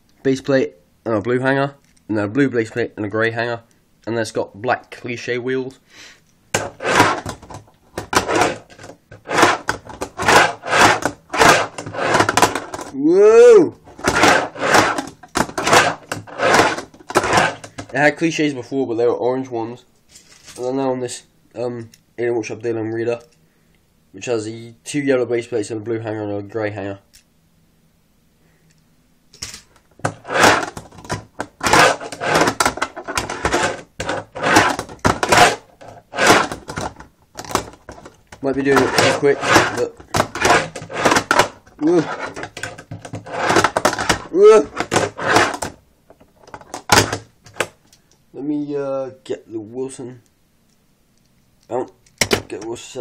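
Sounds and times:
fingerboard wheels rolling on ramps: 6.6 - 12.9, 13.9 - 17.8, 30.0 - 45.8.

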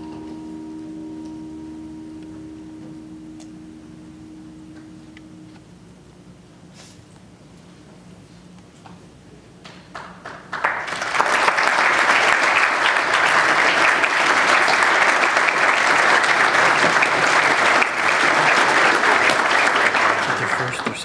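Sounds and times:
audience clapping: 9.6 - 21.0.

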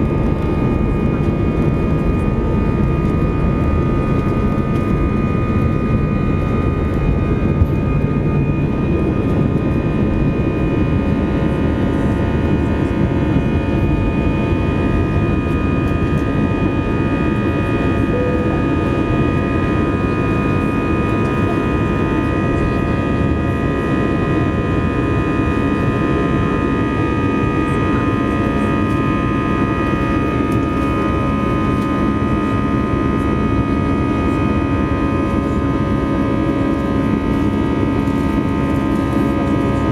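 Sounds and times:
high fan whine: 0.0 - 39.9
jet engine rumble: 0.0 - 39.9.

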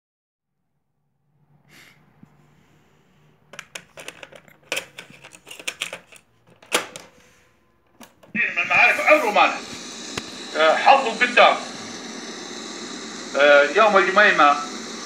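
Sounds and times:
boombox keys clicking: 3.6 - 7.1
cassette going into deck: 3.6 - 7.2.

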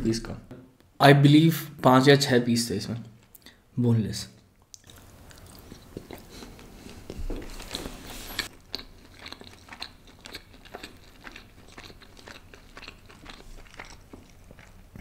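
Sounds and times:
close chewing: 4.7 - 15.0.

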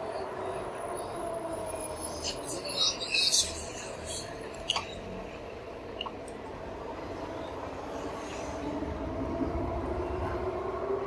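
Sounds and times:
car engines humming in traffic: 0.0 - 11.0.

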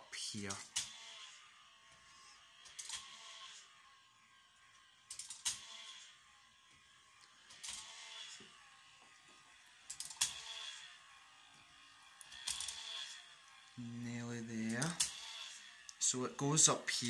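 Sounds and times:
faint motor whir: 0.0 - 17.0
small plastic clicks and clatters: 2.6 - 3.6, 4.8 - 6.1, 7.2 - 8.4, 9.8 - 10.9, 12.2 - 13.8, 14.6 - 16.1.

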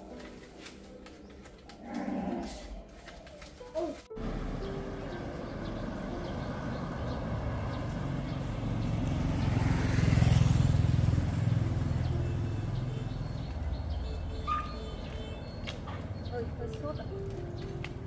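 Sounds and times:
vehicle passing by: 4.2 - 15.1.

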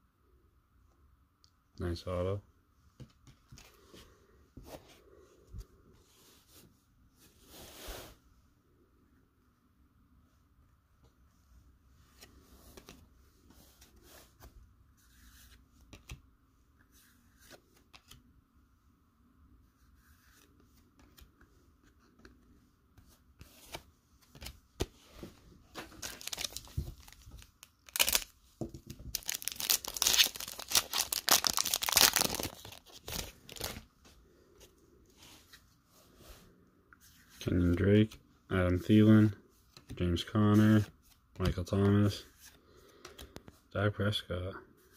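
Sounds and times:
cards rustling: 20.0 - 33.9
card pack wrapper tearing: 26.0 - 28.3, 29.1 - 33.7.

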